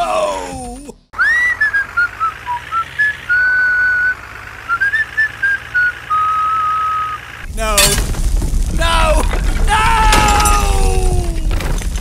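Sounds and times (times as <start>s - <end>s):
person whistling a tune: 1.2s - 7.2s.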